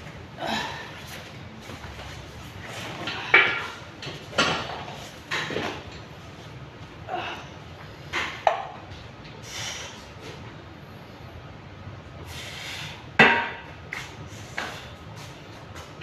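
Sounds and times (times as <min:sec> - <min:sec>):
dumbbells clanking: 0:02.9 - 0:06.1.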